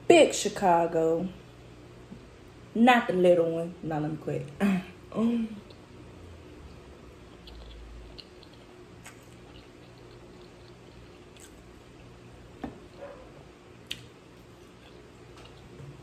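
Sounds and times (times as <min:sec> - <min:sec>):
steady low background hum: 0:00.0 - 0:16.0
wet mouth sounds eating: 0:06.6 - 0:12.4.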